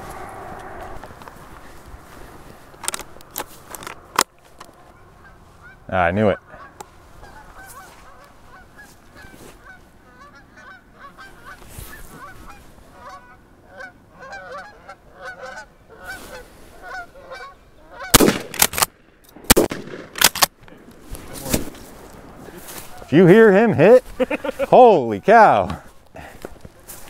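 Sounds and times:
geese honking: 0:04.8 - 0:18.2
shotgun shots: 0:18.1 - 0:20.5.

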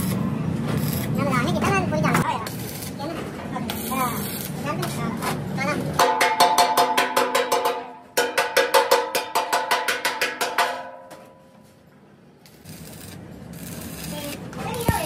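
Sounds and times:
hammer striking steel tank: 0:06.0 - 0:11.4.

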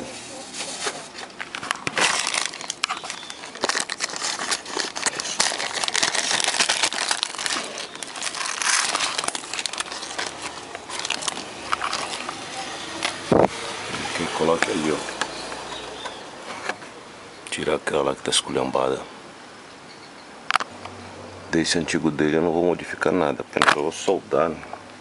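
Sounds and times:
plastic bag crinkling: 0:00.4 - 0:16.1.

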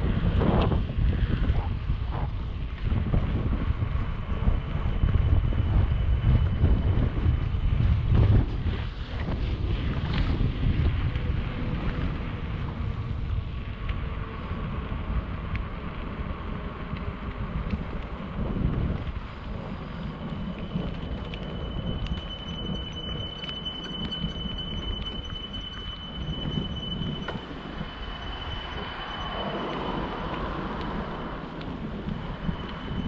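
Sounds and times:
bicycle tyres rumbling on pavement: 0:00.0 - 0:33.0
wind buffeting microphone: 0:00.0 - 0:33.0
steady high-pitched tone: 0:19.4 - 0:33.0.

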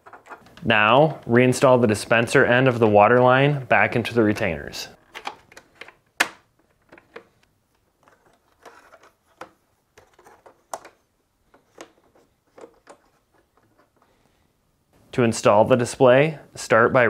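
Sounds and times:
plastic clicks and rubbing: 0:00.0 - 0:00.7, 0:05.0 - 0:14.2.

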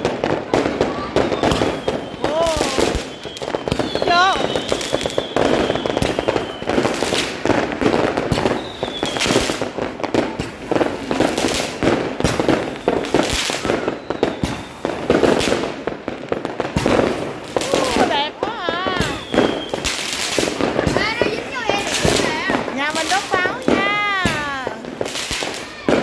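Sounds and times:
fireworks bangs and crackles: 0:00.0 - 0:26.0
faint falling whistles: 0:01.3 - 0:07.0, 0:08.4 - 0:09.5, 0:12.7 - 0:15.0, 0:19.0 - 0:20.1.

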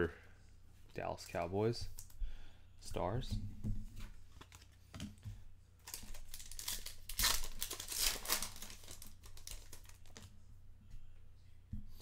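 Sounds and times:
wrapper tearing and crinkling: 0:05.8 - 0:10.3.

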